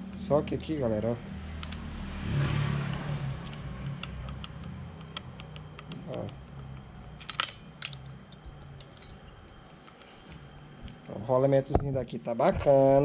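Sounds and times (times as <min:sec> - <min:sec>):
steady low hum: 0:00.0 - 0:13.0
small metal clicks and taps: 0:01.5 - 0:01.8, 0:03.4 - 0:10.1.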